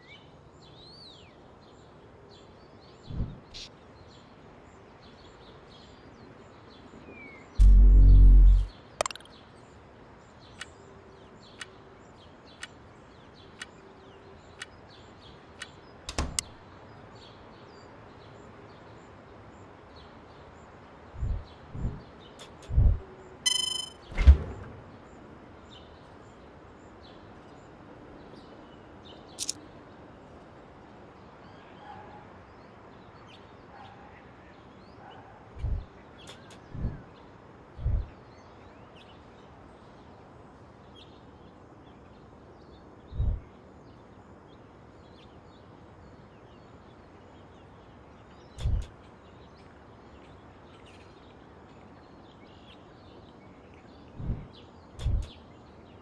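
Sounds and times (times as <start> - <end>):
faint bird chirps: 6.9 - 9.6, 21.2 - 25.1
low thumps: 7.6 - 8.7
sharp click: 7.6 - 9.3, 29.4 - 29.6, 55.0 - 55.4.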